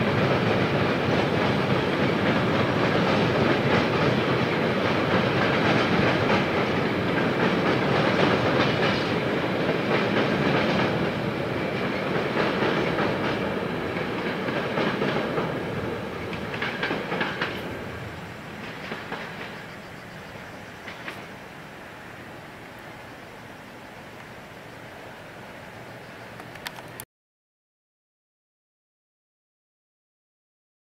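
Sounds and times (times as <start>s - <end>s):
train wheels clacking on rails: 0.0s - 21.8s.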